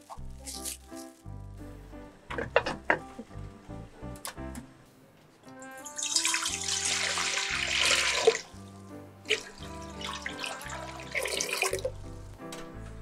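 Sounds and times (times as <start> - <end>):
background music: 0.0 - 13.0
water pouring into metal pot: 5.9 - 8.5, 9.3 - 11.9.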